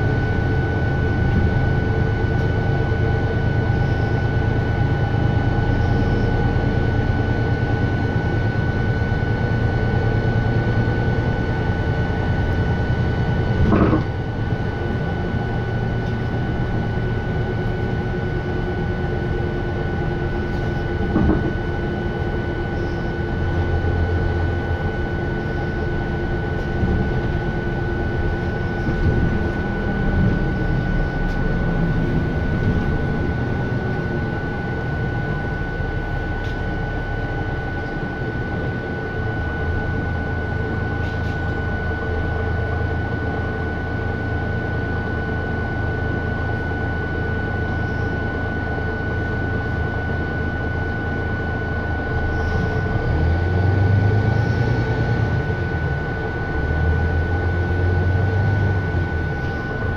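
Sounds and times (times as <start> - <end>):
bus engine drone and whine: 0.0 - 59.9
knocks in bus cabin: 13.6 - 14.1, 21.0 - 21.6.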